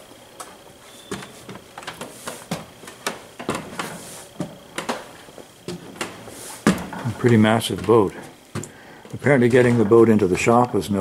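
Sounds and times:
footsteps on wooden steps: 1.1 - 8.8.

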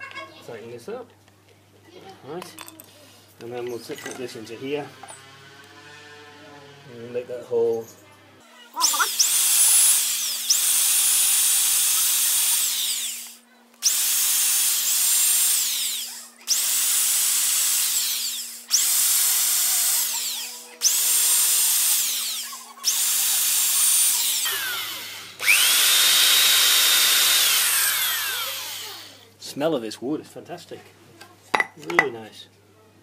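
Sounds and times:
electric drill boring into wood: 8.8 - 29.3.

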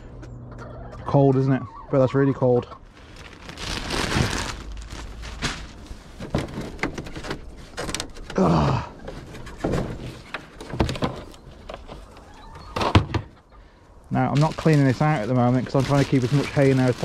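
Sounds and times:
clothing rustle: 2.9 - 8.3
knocks and scrapes: 4.9 - 8.4, 9.0 - 13.4
plastic roof panel handled: 5.4 - 8.4, 9.0 - 13.3
person grunting: 8.4 - 9.0.

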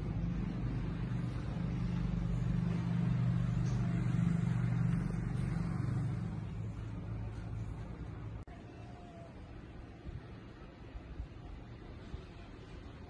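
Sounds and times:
vehicle engine droning past: 0.0 - 8.4.

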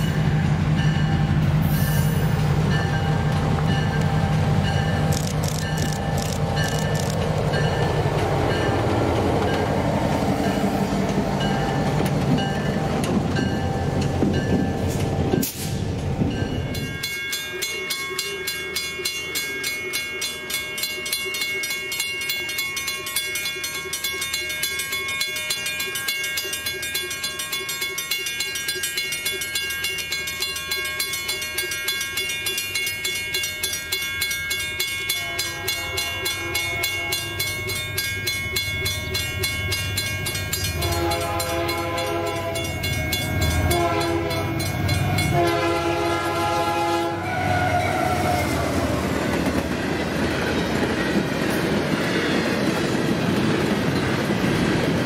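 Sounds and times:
level crossing bells ringing: 16.3 - 45.8
train horn blasts: 35.1 - 37.7, 40.6 - 42.8, 43.4 - 49.0.

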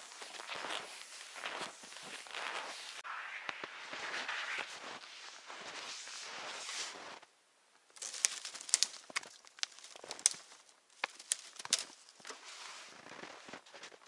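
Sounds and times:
footsteps in snow: 0.0 - 7.3, 8.0 - 14.0.

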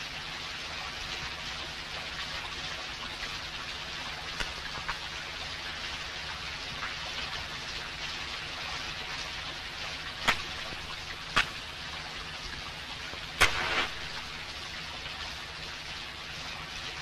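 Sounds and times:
steady hiss: 10.0 - 15.1
match flaring: 10.2 - 11.6, 13.4 - 14.4
match scraping on matchbox: 13.4 - 14.1.

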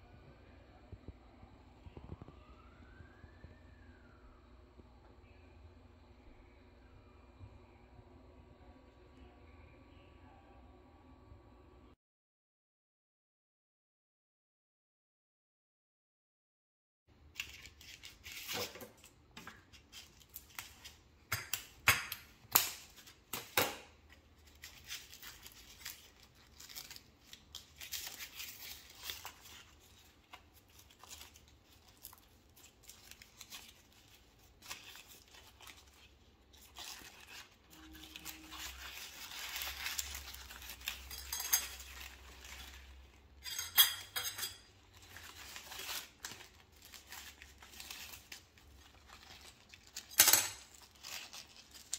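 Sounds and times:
leaves rustling and crackling: 24.4 - 43.3, 44.7 - 51.9.

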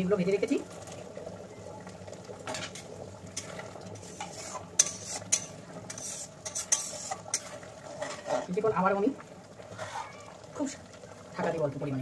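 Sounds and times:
gravy bubbling: 0.0 - 12.0
spatula scraping a metal pan: 4.0 - 8.6, 9.7 - 10.1.

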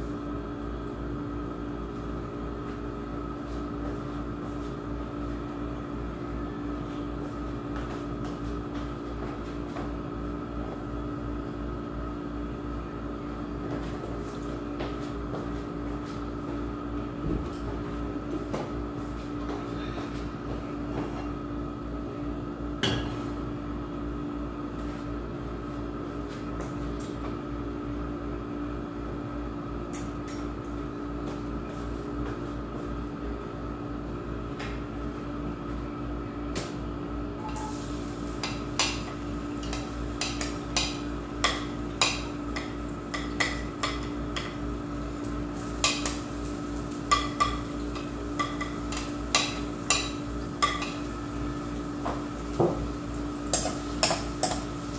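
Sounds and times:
steady background hum: 0.0 - 54.9.

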